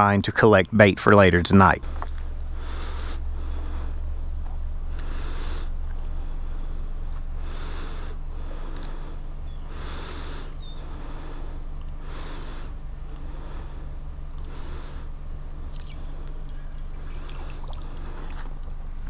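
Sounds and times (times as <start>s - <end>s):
steady low rumble: 0.0s - 19.0s
person breathing softly: 1.8s - 18.6s
faint ticks: 8.7s - 9.0s.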